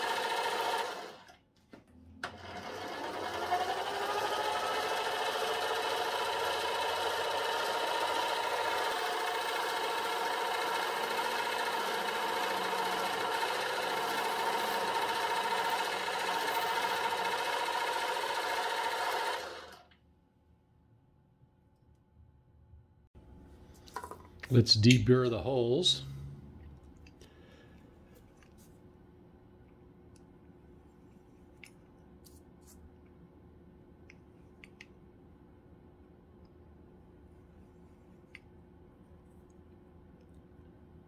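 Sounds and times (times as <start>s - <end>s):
lathe motor and spindle whine: 2.3s - 19.8s
cut-off tool parting metal: 4.0s - 19.8s.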